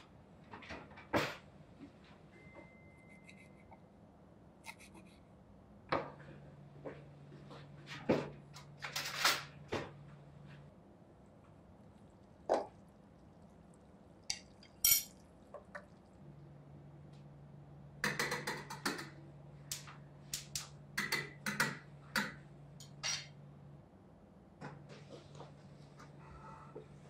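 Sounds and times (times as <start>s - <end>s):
faint low hum: 1.7s - 18.0s.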